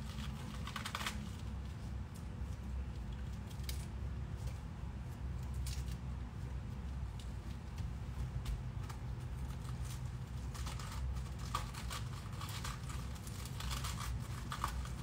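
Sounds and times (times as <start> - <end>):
lettuce leaves tearing: 0.0 - 1.4, 8.8 - 15.0.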